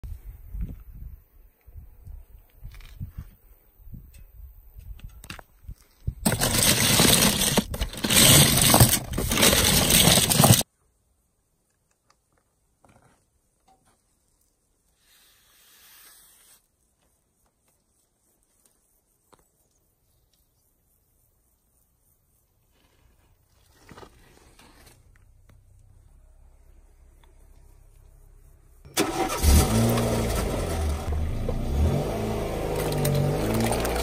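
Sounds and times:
toy cars rattling in a box: 6.2 - 10.6, 32.8 - 34.0
faint hiss: 13.8 - 28.8.

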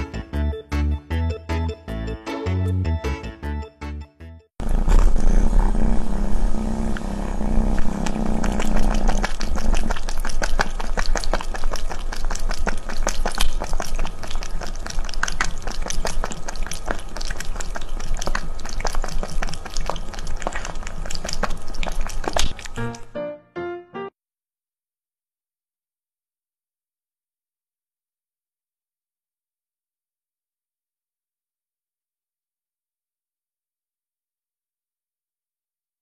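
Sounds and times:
steady low hum: 4.6 - 23.0
cat lapping water: 7.8 - 23.0.

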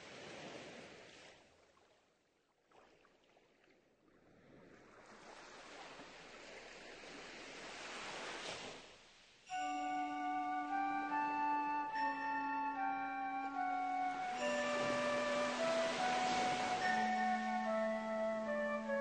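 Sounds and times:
music with long held notes: 9.5 - 19.0.

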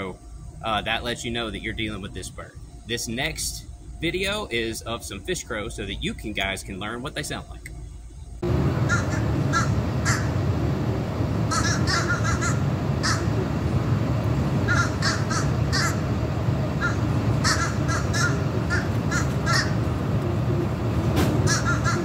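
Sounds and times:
low background rumble: 0.0 - 22.0
crows cawing: 8.8 - 10.4, 11.5 - 13.4, 14.6 - 16.1, 16.8 - 20.0, 21.4 - 22.0.

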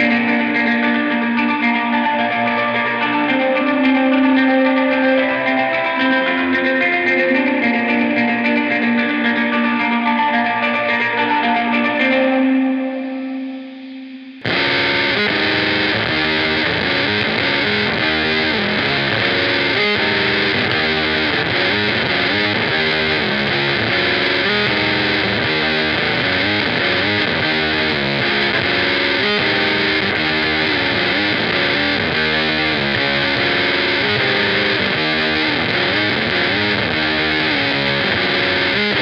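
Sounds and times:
distorted guitar riff: 0.0 - 39.0
electric guitar held note: 13.0 - 39.0.

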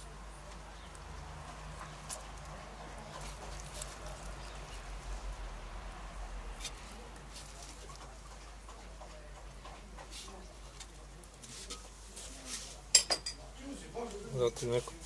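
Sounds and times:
cabbage crackling in pot: 0.0 - 8.6.

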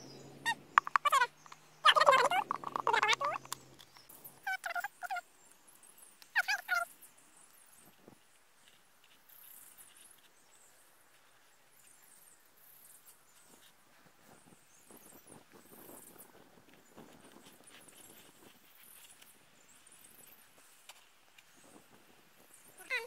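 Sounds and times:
bird calling high-pitched: 0.0 - 3.6, 4.4 - 5.2, 6.3 - 6.9.

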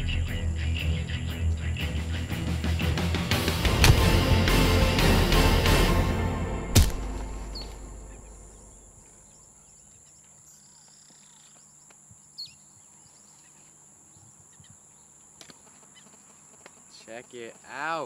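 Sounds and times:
faint bird chirps: 0.0 - 2.4, 7.6 - 17.8
low boom: 3.6 - 9.0.

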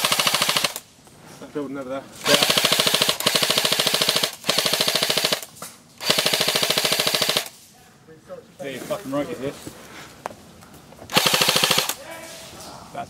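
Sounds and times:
airsoft rifle automatic fire: 0.0 - 0.9, 2.2 - 7.6, 11.1 - 12.0.

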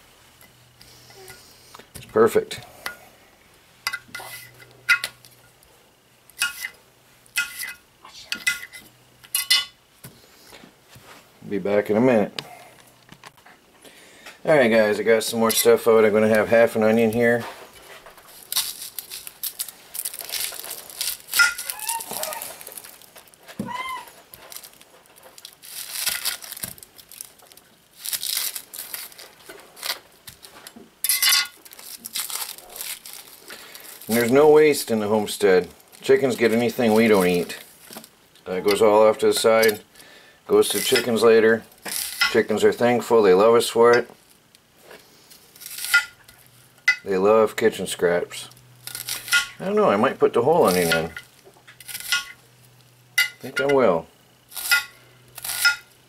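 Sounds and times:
onion skin crackling: 14.8 - 56.0.

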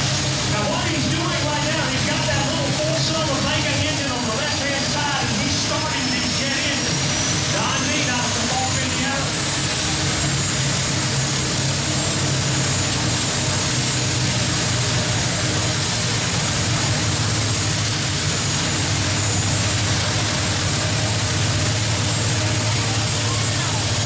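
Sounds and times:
tractor engines idling: 0.0 - 24.0.

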